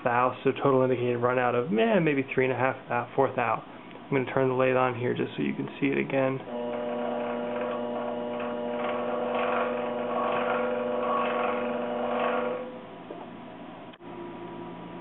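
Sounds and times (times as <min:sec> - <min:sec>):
lathe running hum: 0:06.4 - 0:14.4.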